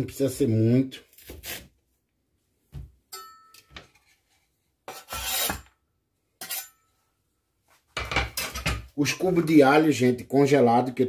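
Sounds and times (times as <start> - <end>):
knife scraping wooden cutting board: 4.9 - 5.7.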